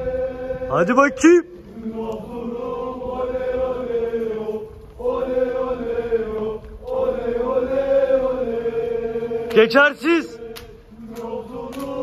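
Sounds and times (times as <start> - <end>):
man chanting call to prayer: 0.6 - 1.6, 9.4 - 10.4.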